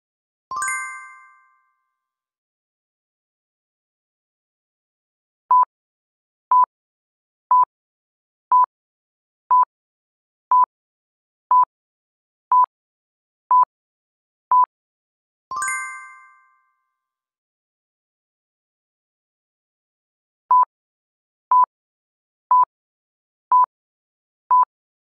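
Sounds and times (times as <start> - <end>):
bright multi-tone chime: 0.5 - 1.8, 15.6 - 16.8.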